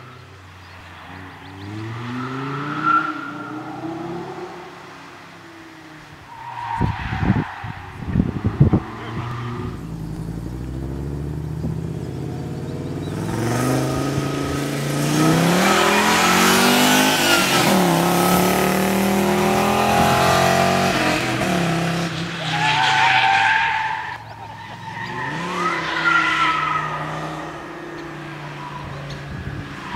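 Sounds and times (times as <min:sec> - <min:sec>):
car engine accelerating past: 0:08.5 - 0:22.2.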